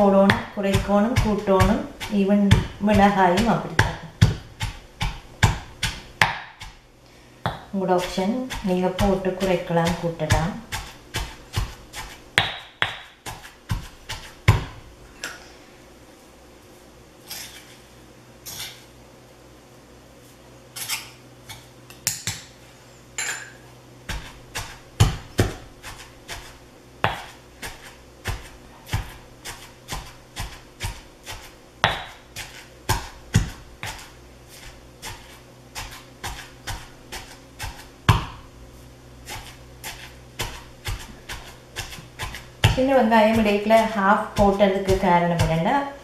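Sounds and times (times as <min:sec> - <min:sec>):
stone pestle pounding in mortar: 0:00.0 - 0:06.8, 0:07.4 - 0:14.8, 0:24.1 - 0:38.5, 0:39.3 - 0:45.6.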